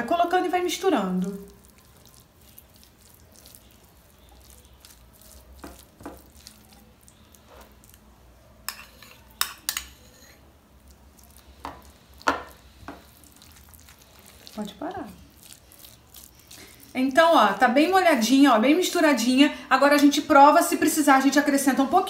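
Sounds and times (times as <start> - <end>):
spoon clinking against glass: 8.7 - 10.4
spoon scraping in glass bowl: 8.7 - 10.5.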